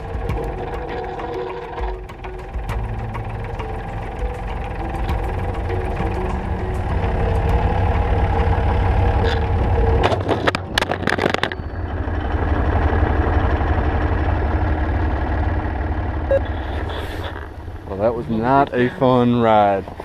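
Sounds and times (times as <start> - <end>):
metallic clanks and knocks: 0.0 - 11.8
tractor engine running: 0.0 - 20.0.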